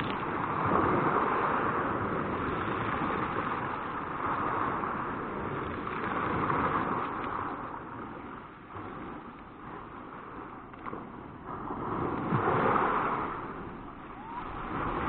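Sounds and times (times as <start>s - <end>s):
waves breaking on pebbles: 9.9s - 15.0s.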